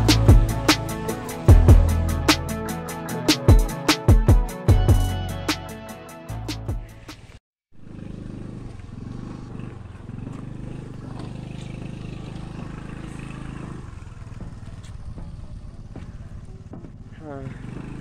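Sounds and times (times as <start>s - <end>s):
motor scooter engine running: 0.0s - 2.5s, 7.1s - 18.0s.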